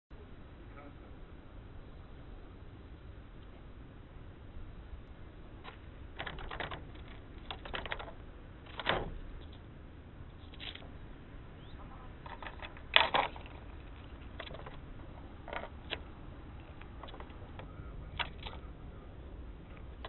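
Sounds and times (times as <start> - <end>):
squirrel clicks and scratches: 5.6 - 9.6, 12.2 - 18.8.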